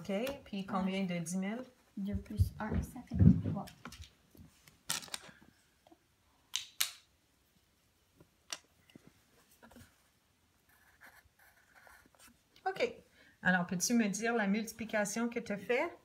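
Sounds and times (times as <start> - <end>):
pencil scratching on paper: 10.7 - 12.4.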